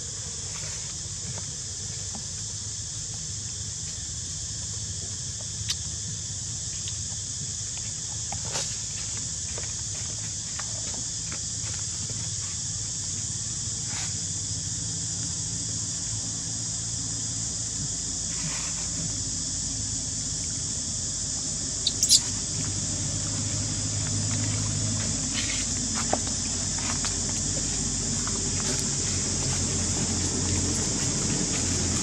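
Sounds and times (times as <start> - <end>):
high-pitched insect chorus: 0.0 - 32.0
short high squeaks: 21.8 - 22.4.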